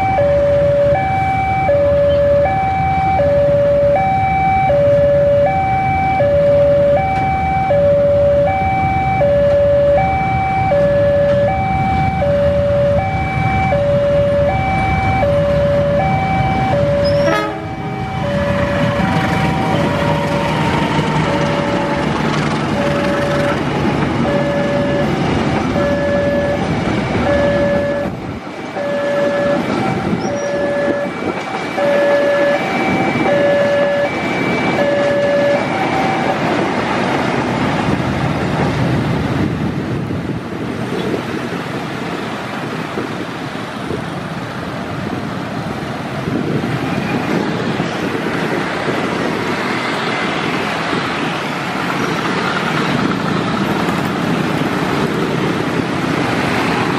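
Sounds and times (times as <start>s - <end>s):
level-crossing alarm tone: 0.0s - 36.8s
passing train rumble: 0.0s - 56.9s
motorcycles driving off: 7.3s - 28.1s, 46.7s - 56.9s.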